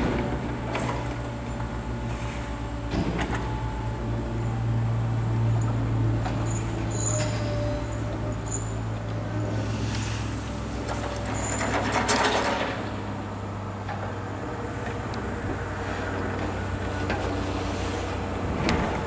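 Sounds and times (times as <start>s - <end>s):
electric train running hum: 0.0s - 19.0s.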